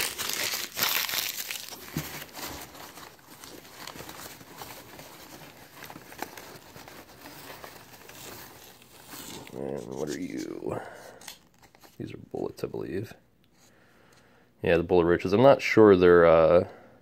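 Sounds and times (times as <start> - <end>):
crumpled paper rustling: 0.0 - 12.1.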